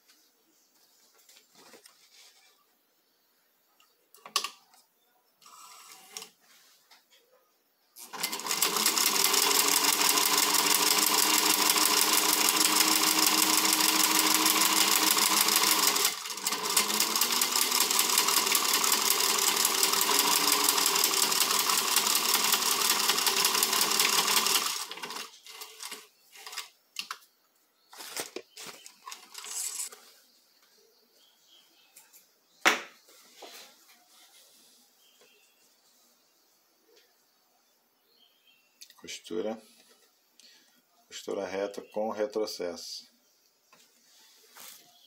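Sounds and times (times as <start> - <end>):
sewing machine stitching: 8.0 - 26.7.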